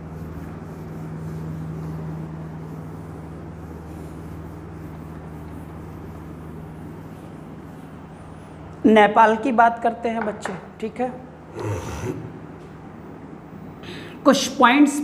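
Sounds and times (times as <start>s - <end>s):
duster rubbing a whiteboard: 0.0s - 8.6s
steady low hum: 0.0s - 15.0s.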